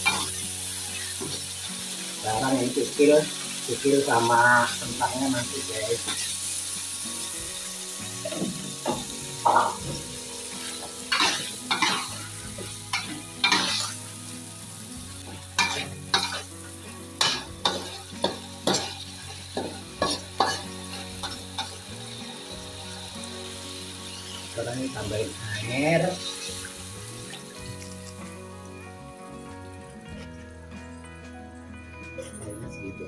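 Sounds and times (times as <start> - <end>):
steady frying sizzle: 0.0 - 31.8
spatula scraping metal wok: 10.4 - 14.1, 15.6 - 22.2.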